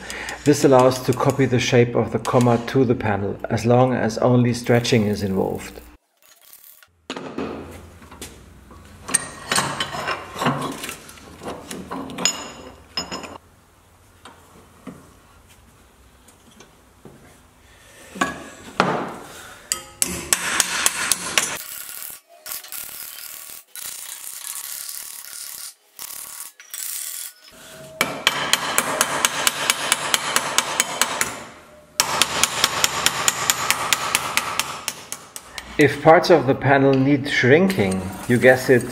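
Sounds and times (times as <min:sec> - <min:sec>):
hammer tapping sheet metal: 0:28.0 - 0:31.4.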